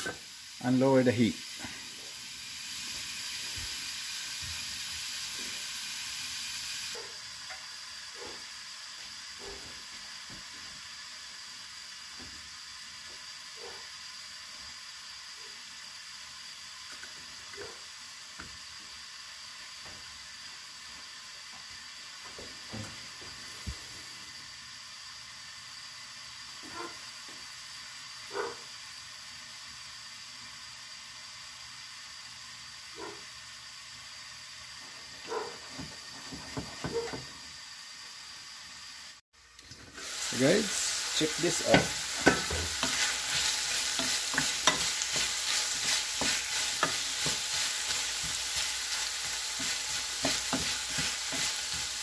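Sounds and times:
food sizzling in covered pan: 0.0s - 52.0s.

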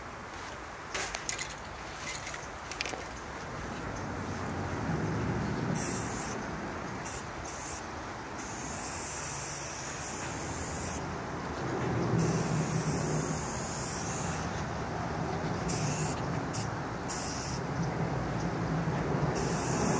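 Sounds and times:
low traffic rumble: 0.0s - 19.9s
aerosol spray can hissing: 5.8s - 6.4s, 7.1s - 11.0s, 12.2s - 14.6s, 15.7s - 17.6s, 19.4s - 19.9s.

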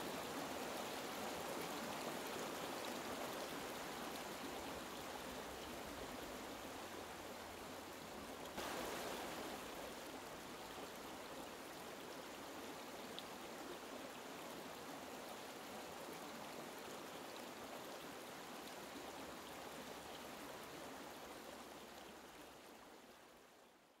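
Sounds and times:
stream water rushing over rocks: 0.0s - 22.9s.

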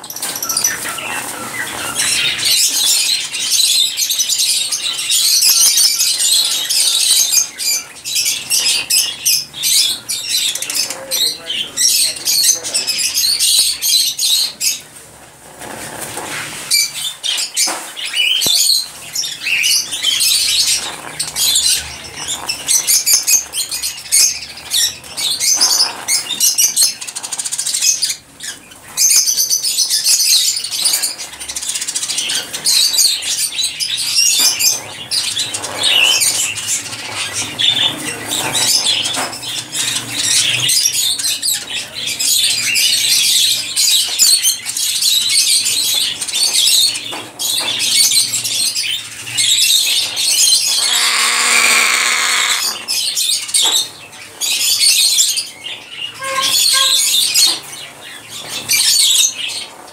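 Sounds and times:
parrot crunching corn kernels: 50.7s - 53.0s.

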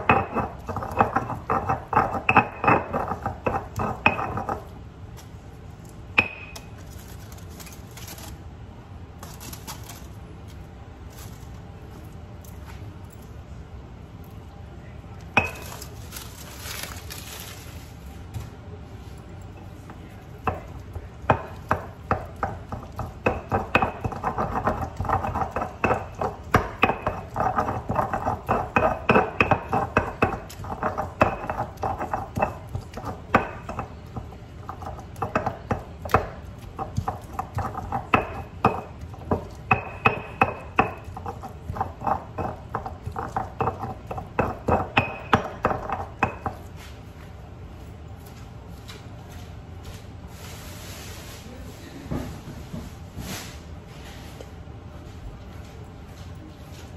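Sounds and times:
stone pestle grinding in mortar: 0.0s - 4.7s, 20.5s - 46.7s.

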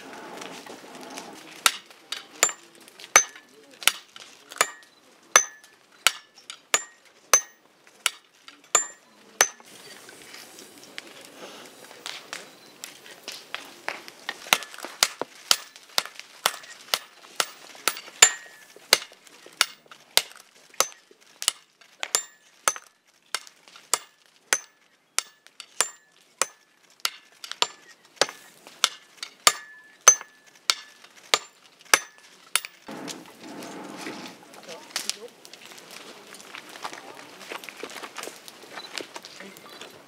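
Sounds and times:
sledgehammers striking metal on anvil: 1.6s - 9.7s, 15.5s - 15.8s, 16.4s - 19.8s, 20.8s - 21.0s, 22.1s - 22.9s, 23.9s - 33.3s.

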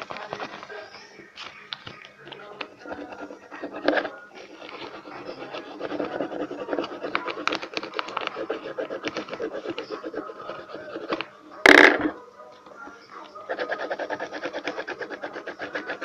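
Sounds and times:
pencil scratching on paper: 2.5s - 12.2s, 13.2s - 16.0s.

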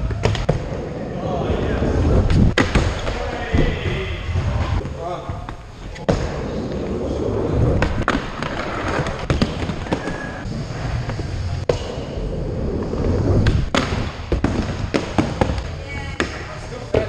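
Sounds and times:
skateboard wheels rolling on ramp: 6.0s - 15.6s.

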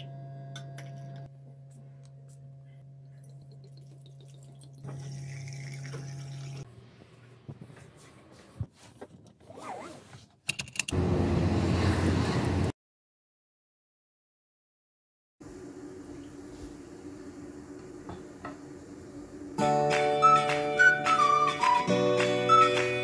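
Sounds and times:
steady low hum: 0.0s - 8.7s
water pouring into glass: 3.2s - 6.6s.

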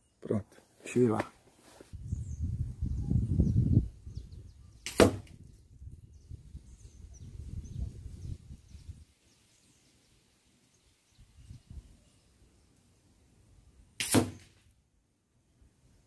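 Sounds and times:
wind buffeting microphone: 1.9s - 9.1s
faint bird chirps: 2.0s - 4.9s, 6.0s - 13.0s
sharp knock: 4.9s - 5.3s, 14.0s - 14.5s.

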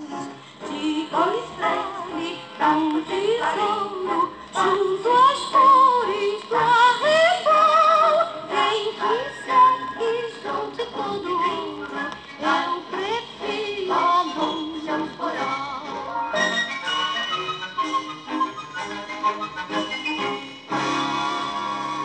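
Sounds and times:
person singing with vibrato: 0.0s - 16.1s
instrumental accompaniment: 8.6s - 22.0s.

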